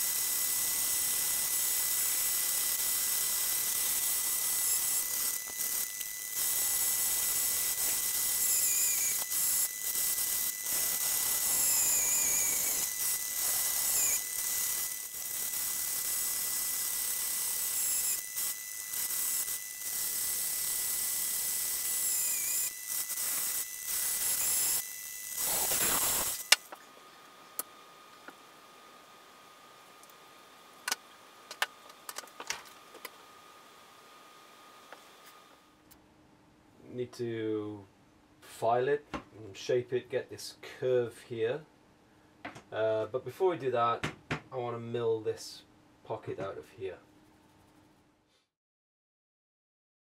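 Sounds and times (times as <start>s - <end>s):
bandsaw cutting metal plate: 0.0s - 26.8s.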